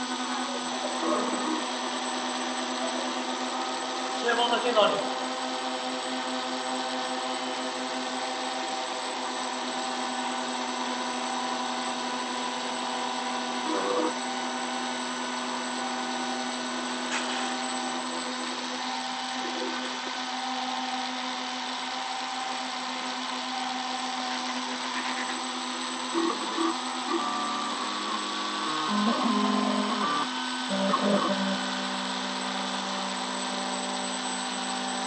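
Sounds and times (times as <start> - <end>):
router spindle motor whine: 0.0 - 35.0
higher machine tone: 23.4 - 35.0.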